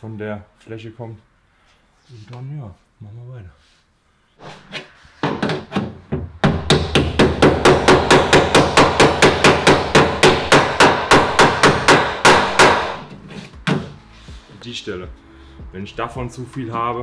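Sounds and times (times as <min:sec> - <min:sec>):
hammer striking sheet metal: 0:04.5 - 0:13.9.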